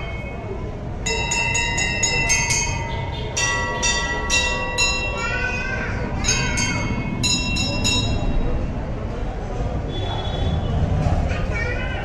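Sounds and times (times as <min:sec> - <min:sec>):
murmur of crowd: 0:00.0 - 0:12.0
brass bell ringing: 0:01.0 - 0:05.3, 0:06.2 - 0:08.6.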